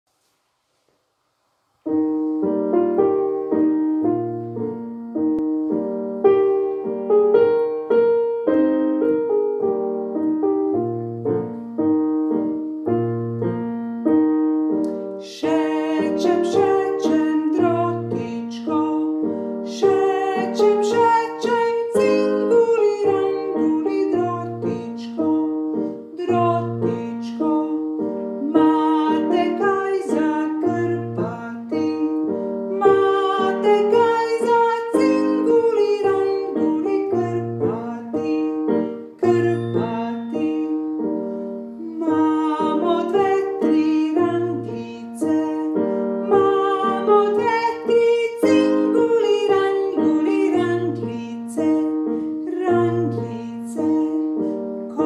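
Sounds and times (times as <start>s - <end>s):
piano music: 1.8s - 55.0s.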